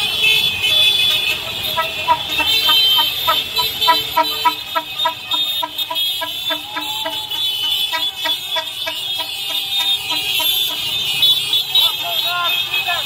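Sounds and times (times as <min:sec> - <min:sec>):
car horn short toots: 0:00.0 - 0:13.0
traffic noise: 0:00.0 - 0:13.0.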